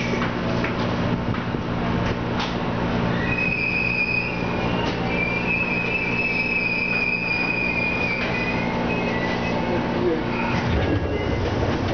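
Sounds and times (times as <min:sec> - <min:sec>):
train low hum: 0:00.0 - 0:11.9
train brakes squealing: 0:03.1 - 0:11.4.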